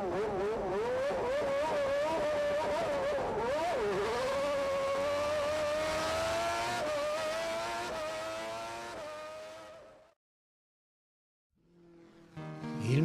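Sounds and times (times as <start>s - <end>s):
racing car engine at high revs: 0.0s - 10.1s.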